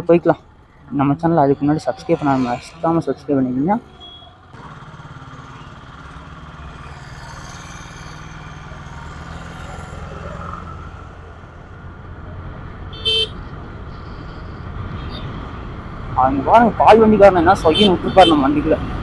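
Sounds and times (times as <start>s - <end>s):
road and wind noise: 0.0s - 19.0s
scooter engine running: 3.8s - 10.2s
vehicle horn toot: 3.9s - 4.4s, 12.9s - 13.4s, 17.7s - 18.4s.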